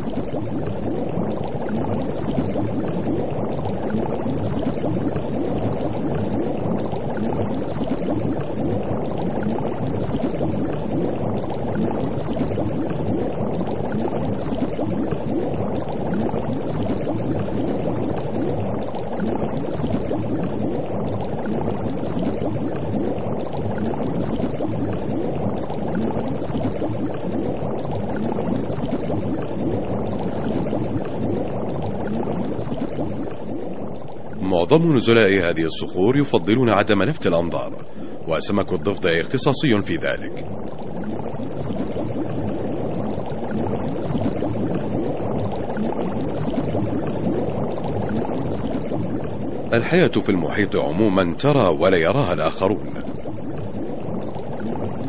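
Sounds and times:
underwater bubbling: 0.0s - 55.0s.

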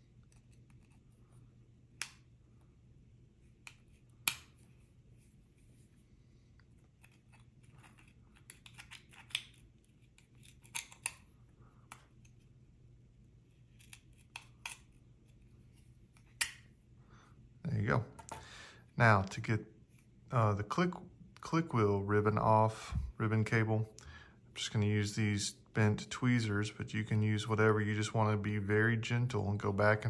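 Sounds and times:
tweezers clicking and scratching metal: 7.0s - 11.3s.

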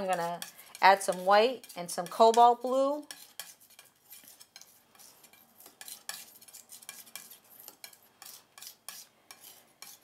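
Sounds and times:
palette knife scraping and tapping: 0.0s - 10.0s.

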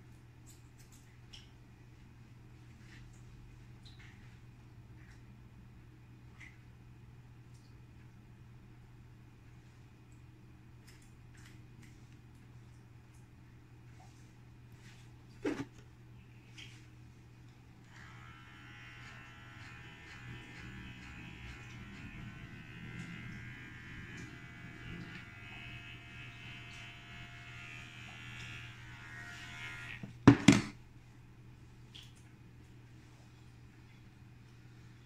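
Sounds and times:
electric hair clippers running: 17.9s - 30.7s.

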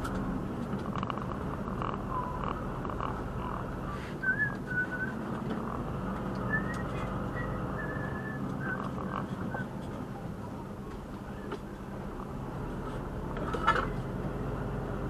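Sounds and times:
truck engine drone: 0.0s - 15.0s
person whistling a tune: 4.2s - 5.2s, 6.5s - 8.9s.

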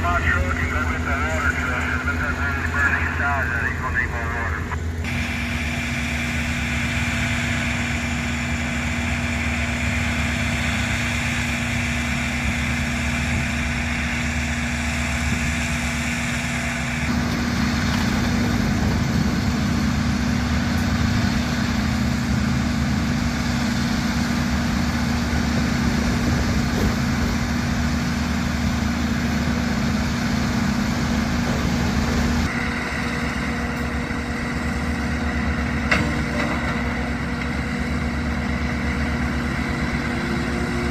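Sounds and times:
heavy machinery engines droning: 0.0s - 40.9s.

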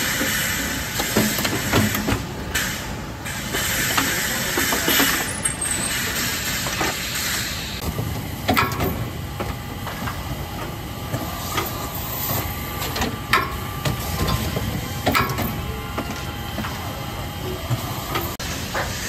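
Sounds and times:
machine hissing and humming: 0.0s - 19.0s.

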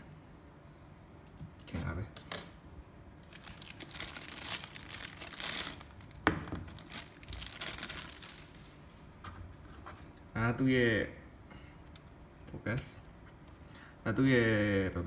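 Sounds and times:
plastic bag crinkling: 3.2s - 9.1s.

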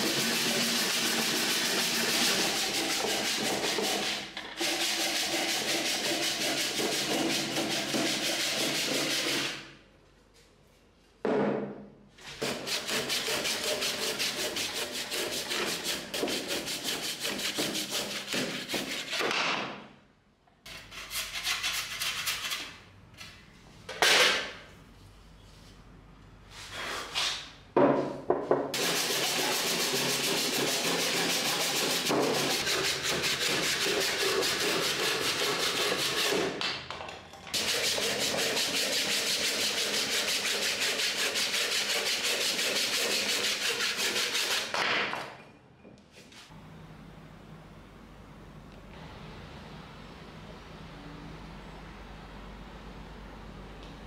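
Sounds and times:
hand saw cutting log: 0.0s - 9.5s, 12.4s - 19.2s, 28.8s - 36.5s, 37.6s - 44.7s.

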